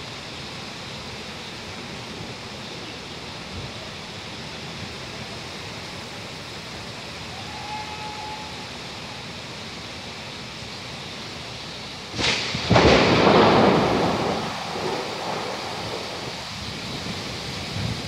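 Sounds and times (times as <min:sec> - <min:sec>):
steady rain: 0:00.0 - 0:18.0
thunder crack and rumble: 0:12.1 - 0:18.0.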